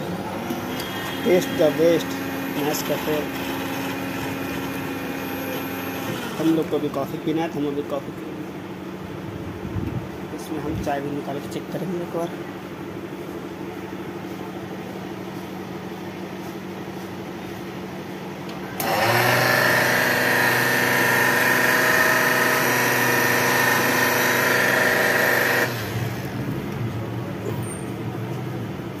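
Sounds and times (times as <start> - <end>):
vending machine hum: 0.0 - 29.0
motor whine: 0.2 - 6.8, 18.8 - 26.6.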